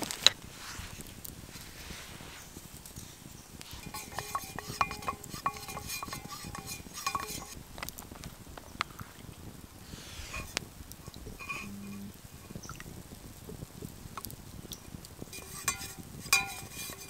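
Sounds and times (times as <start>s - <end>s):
wooden spoon stirring in metal cup: 0.6s - 8.2s, 10.2s - 12.7s, 14.1s - 17.0s.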